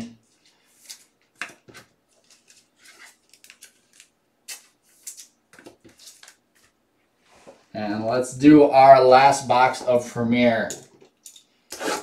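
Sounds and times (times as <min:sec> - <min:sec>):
cards and packaging handled: 0:00.3 - 0:06.8.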